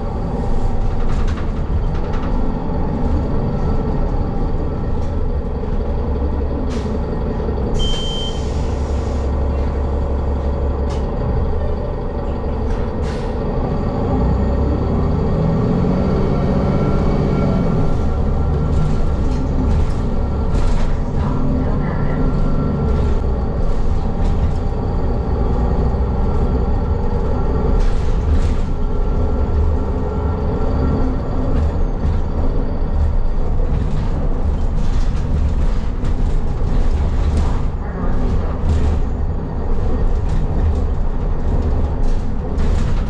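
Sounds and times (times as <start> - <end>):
bus engine and road rumble: 0.0 - 43.0.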